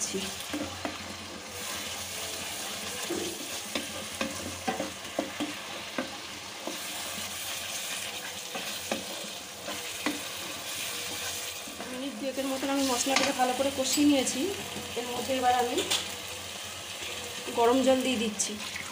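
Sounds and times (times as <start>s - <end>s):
spice paste sizzling in oil: 0.0s - 18.9s
spatula scraping pan: 0.2s - 14.1s.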